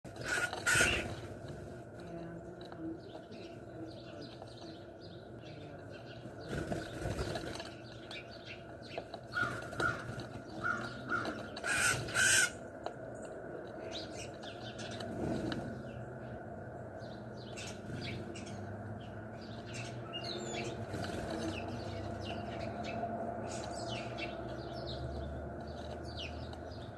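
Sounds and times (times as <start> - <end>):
wings fluttering: 0.1 - 2.0, 6.4 - 8.0, 9.0 - 12.5, 20.7 - 22.0
short harsh bird calls: 0.2 - 1.2, 11.6 - 12.6.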